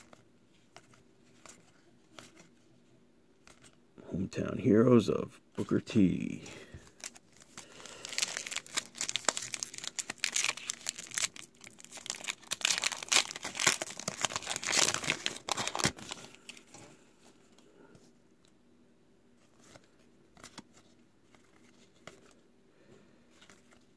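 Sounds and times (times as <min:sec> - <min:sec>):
plastic wrapper crinkling and tearing: 0:06.8 - 0:16.7.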